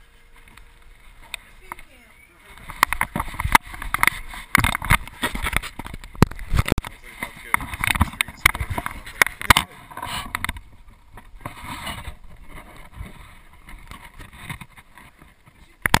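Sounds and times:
rubbing and rustling: 0.0 - 16.0.

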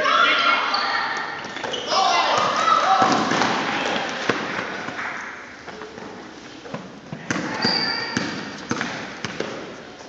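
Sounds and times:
shoe squeak: 0.7 - 2.0, 7.5 - 8.4.

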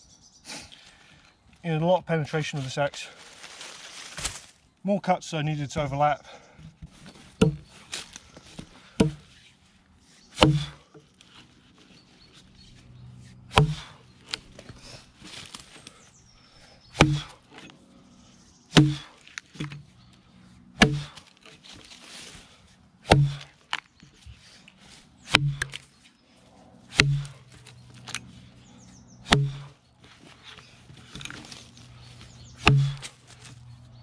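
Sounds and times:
axe chopping into log: 6.8 - 7.7, 9.0 - 9.3, 10.4 - 10.9, 13.5 - 14.0, 16.9 - 17.4, 18.7 - 19.9, 20.8 - 21.6, 23.0 - 23.6, 25.3 - 25.8, 26.9 - 27.4, 29.3 - 29.7, 32.6 - 33.2.

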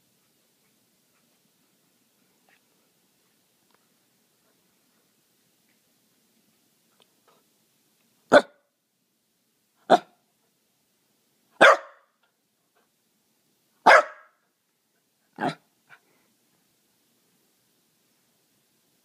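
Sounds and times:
dog barking: 8.3 - 8.6, 9.9 - 10.2, 11.6 - 12.1, 13.8 - 14.4, 15.4 - 15.6.

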